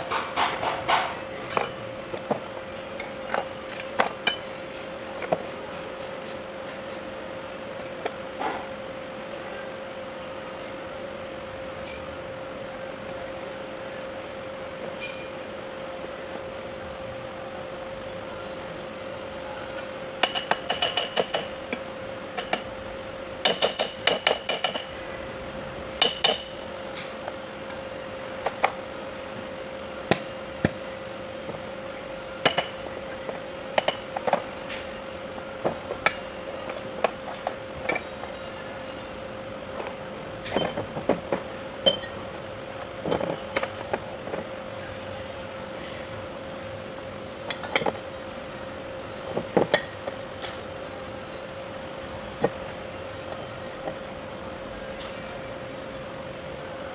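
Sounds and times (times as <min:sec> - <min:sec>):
steady background hum: 0:00.0 - 0:56.9
metal parts clinking and knocking: 0:01.4 - 0:01.8.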